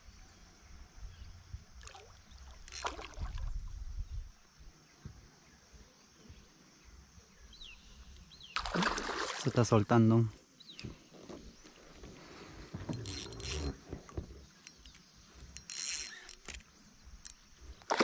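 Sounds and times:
brief splashes: 1.8s - 3.7s, 8.6s - 9.8s
water sloshing around kayak: 1.8s - 3.8s, 8.6s - 9.7s, 17.6s - 18.0s.

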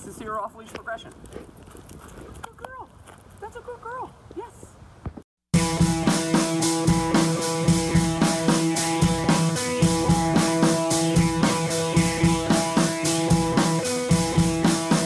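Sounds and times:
background music with drums and guitar: 5.5s - 15.0s.

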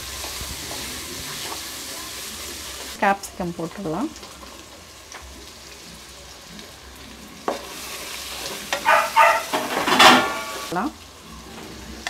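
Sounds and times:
vegetables sizzling in oil: 0.0s - 12.0s
spatula scraping and stirring: 7.4s - 10.7s.

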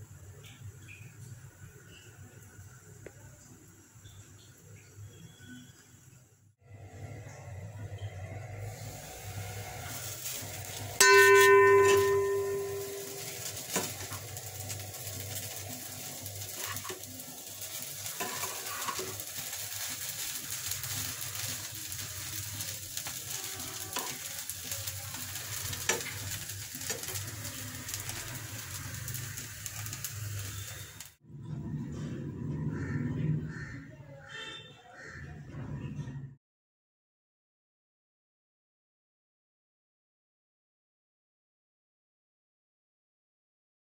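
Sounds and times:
food sizzling in a pan: 0.0s - 31.2s
spatula scraping a pan: 8.7s - 31.0s
loud metallic clang: 11.0s - 14.2s.

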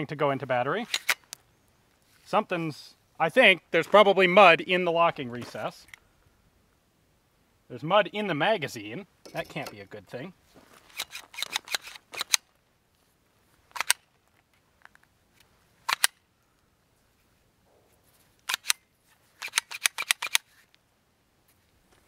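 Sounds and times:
pistol slide metallic clacks: 0.9s - 1.3s, 10.9s - 12.5s, 13.7s - 14.0s, 15.8s - 16.2s, 18.4s - 18.8s, 19.4s - 20.7s.

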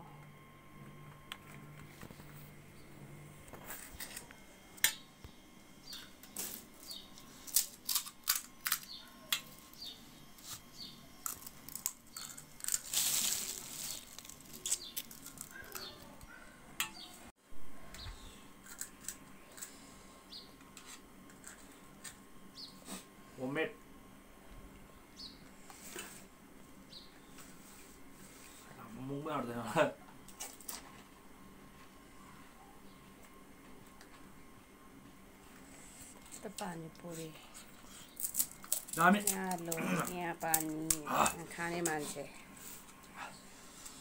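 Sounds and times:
crisp fried food crinkling: 6.4s - 9.8s, 11.2s - 16.1s, 37.9s - 41.0s
plastic bag rustling: 11.2s - 16.1s.

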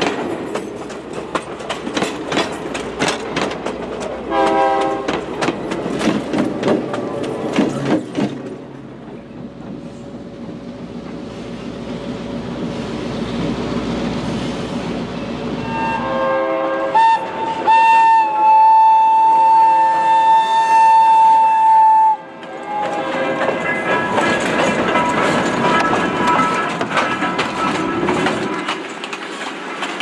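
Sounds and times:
diesel locomotive rolling past: 0.0s - 30.0s
train whistle blast: 4.3s - 5.1s, 15.6s - 23.4s.

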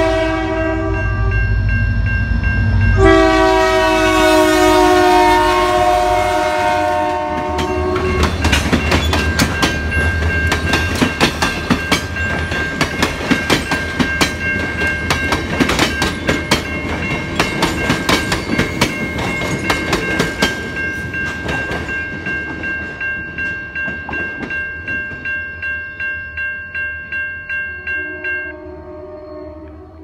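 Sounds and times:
electronic crossing bell ringing: 0.8s - 3.6s, 7.5s - 28.8s
train wheels clacking over rails: 7.2s - 25.3s.

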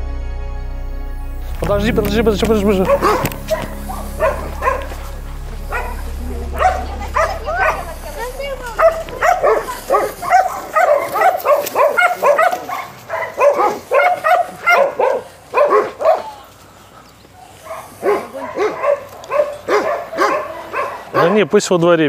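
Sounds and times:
dogs barking and yelping: 2.8s - 16.4s, 17.4s - 21.4s.

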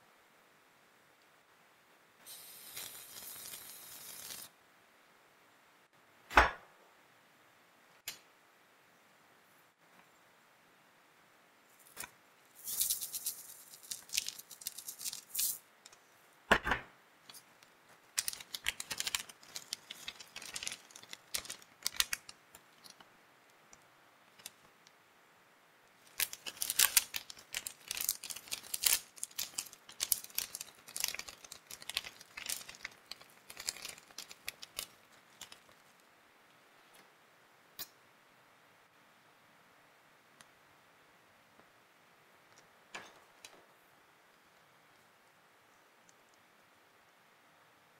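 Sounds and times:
plastic wrappers crinkling: 11.8s - 15.6s, 17.3s - 23.0s, 24.3s - 24.7s, 26.0s - 36.0s.

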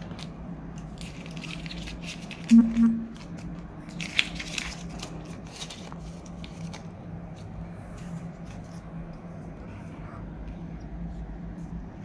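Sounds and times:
banknotes rustling: 0.0s - 8.9s.

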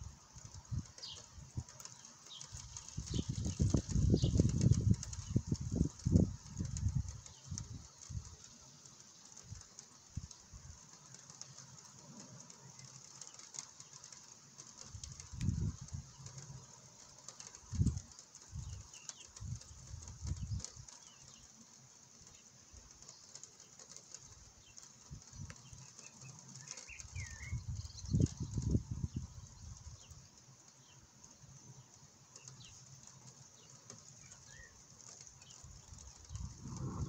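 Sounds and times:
steady high hiss: 0.0s - 37.0s
wind buffeting microphone: 2.4s - 8.4s, 15.0s - 16.2s, 17.6s - 21.0s, 26.9s - 30.2s, 35.4s - 37.0s
faint bird chirp: 17.3s - 37.0s.

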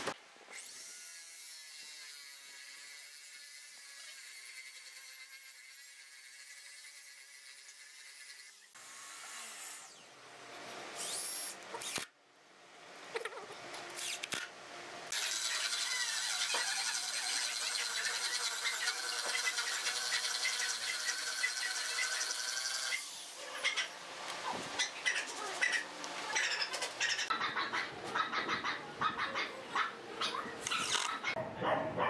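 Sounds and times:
cordless drill driving screw: 11.0s - 12.1s, 30.6s - 31.2s
drill whine boring hole: 15.1s - 23.1s.

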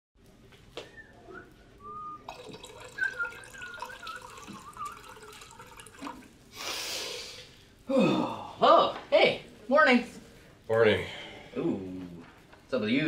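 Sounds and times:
water pouring into a mug: 2.2s - 6.4s.

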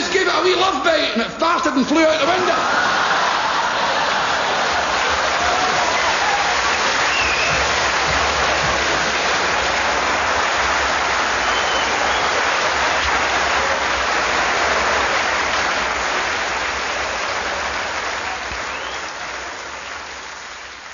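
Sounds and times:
audience applauding: 1.9s - 20.9s.

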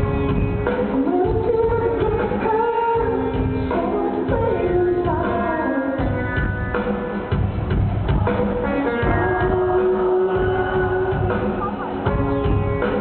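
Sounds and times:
live rock band playing: 0.0s - 13.0s
drum beat: 6.1s - 13.0s.

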